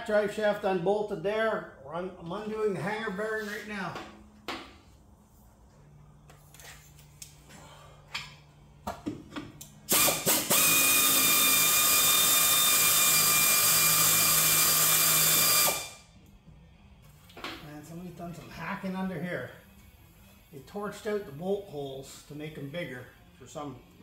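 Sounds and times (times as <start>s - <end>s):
pneumatic wrench whining: 9.9s - 16.0s.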